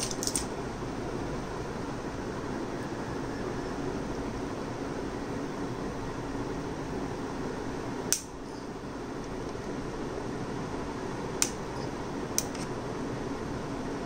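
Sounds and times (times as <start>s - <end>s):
metal device clicking: 0.0s - 0.5s
fan-like background noise: 0.0s - 14.0s.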